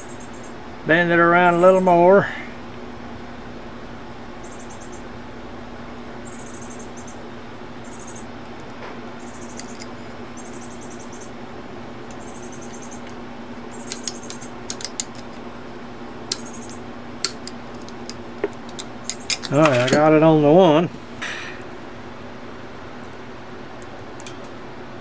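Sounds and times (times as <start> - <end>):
steady low hum: 0.0 - 25.0
small sharp metal clicks: 9.4 - 10.0, 12.1 - 15.4, 16.3 - 20.0, 23.8 - 24.6.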